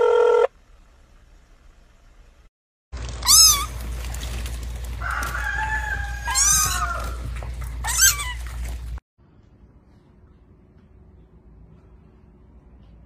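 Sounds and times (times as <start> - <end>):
high-pitched falling animal cries: 3.1 - 3.8, 5.2 - 7.2
long crowing call: 5.0 - 7.4.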